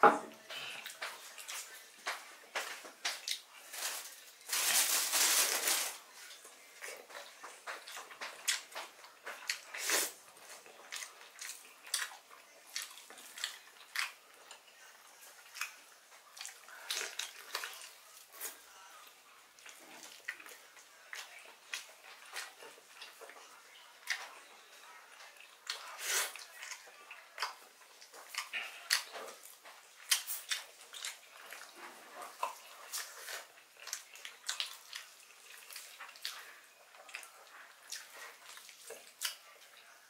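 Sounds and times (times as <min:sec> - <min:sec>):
wet chewing and lip-smacking: 0:06.8 - 0:14.6, 0:25.2 - 0:39.7.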